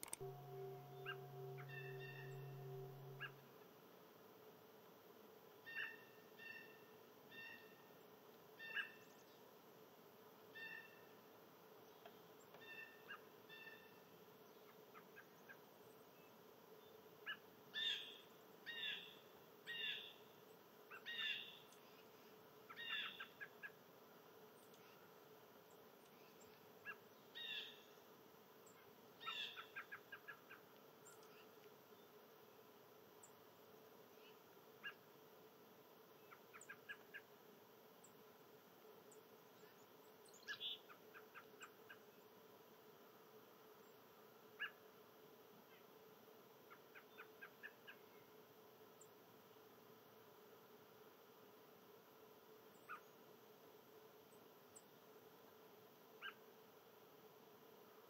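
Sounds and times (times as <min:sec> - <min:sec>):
songbirds calling: 0:00.0 - 0:03.4, 0:22.7 - 0:23.8, 0:25.7 - 0:28.0, 0:28.6 - 0:32.2, 0:39.6 - 0:42.3
low steady hum: 0:00.0 - 0:20.9.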